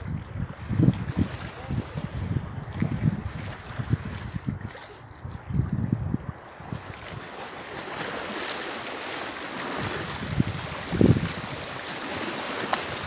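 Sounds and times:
waves washing over rocks: 6.5 - 13.0.

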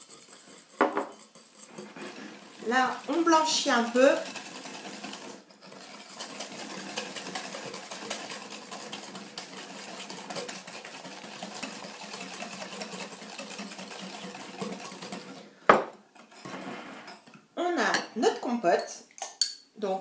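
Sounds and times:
whisk clicking against glass bowl: 2.8 - 15.3.

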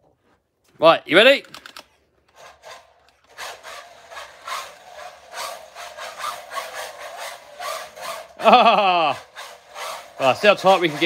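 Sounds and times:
rc car motor and tyres surging: 2.4 - 11.0.

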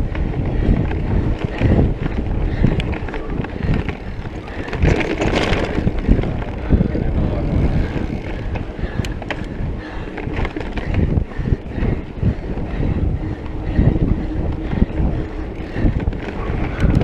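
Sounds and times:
bike frame rattle: 0.0 - 17.0
wind buffeting microphone: 0.0 - 17.0.

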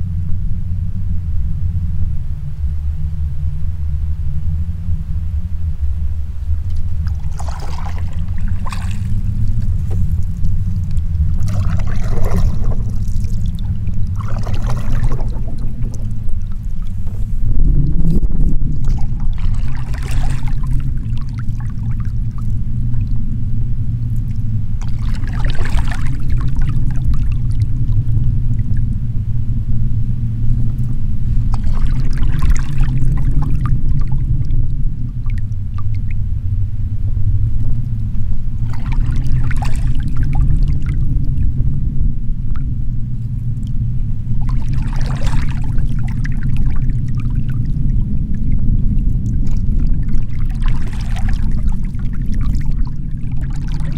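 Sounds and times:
low rumble: 0.0 - 53.9
paddle splashing water: 6.8 - 23.2, 24.2 - 28.8, 31.2 - 36.2, 38.6 - 41.1, 44.3 - 53.9.

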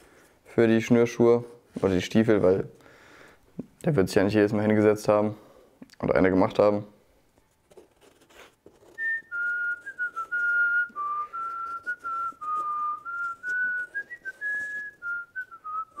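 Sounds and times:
person whistling a tune: 8.9 - 16.0.

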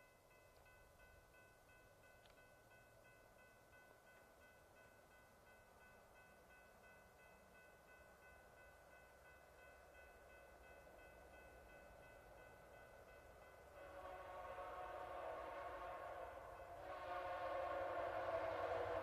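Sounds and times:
railroad crossing bell ringing: 0.0 - 17.2
approaching train rumble: 10.5 - 19.0
train horn chord: 13.7 - 19.0.

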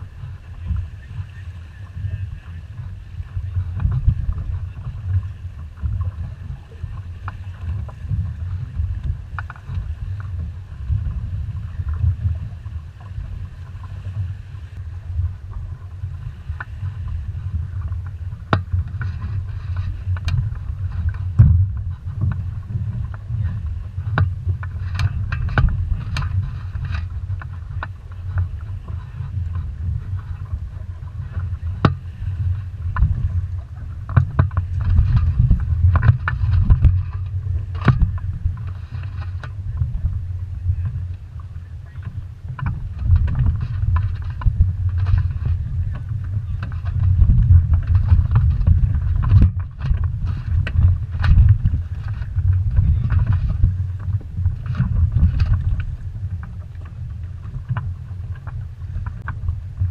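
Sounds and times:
water washing along hull: 0.0 - 59.9
wind rumbling on microphone: 0.0 - 59.9
boat gear knocking and clicking: 17.6 - 32.2, 32.8 - 59.9.

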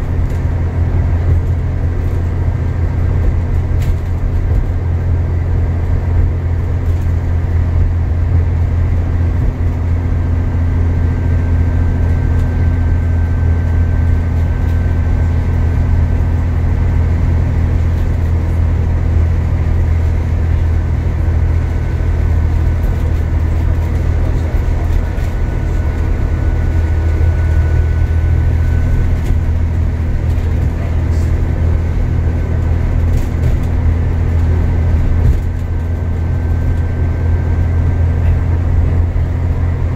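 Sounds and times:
bus engine drone: 0.0 - 39.9
road and tyre noise: 0.0 - 39.9.

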